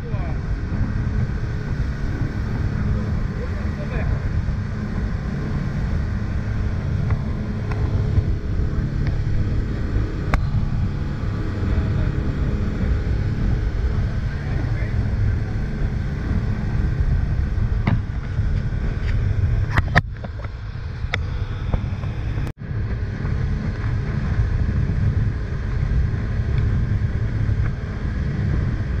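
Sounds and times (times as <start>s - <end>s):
boat engine rumble: 0.0s - 29.0s
wind and spray rushing: 0.0s - 29.0s
sharp knocks: 17.8s - 18.2s.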